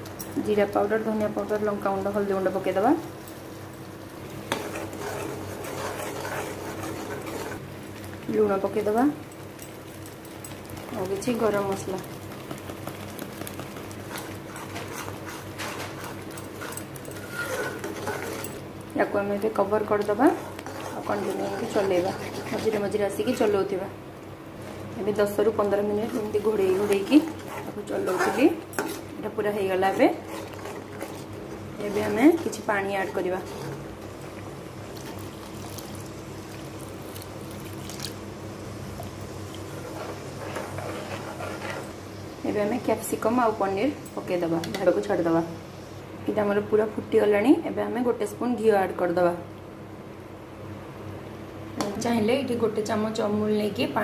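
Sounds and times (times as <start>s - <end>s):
steady low hum: 0.0s - 54.0s
spoon stirring thick gravy: 4.4s - 7.6s, 10.2s - 18.6s, 19.9s - 23.6s, 25.6s - 38.2s, 39.5s - 41.9s
spoon scraping metal pan: 4.5s - 7.6s, 14.1s - 18.6s, 20.0s - 23.6s, 26.0s - 29.1s, 29.7s - 33.8s, 39.8s - 41.9s.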